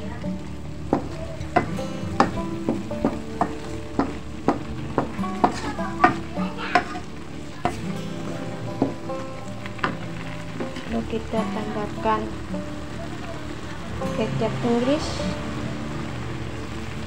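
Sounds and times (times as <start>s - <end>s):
filling sizzling: 0.0s - 17.0s
spatula scraping a wok: 4.9s - 11.0s.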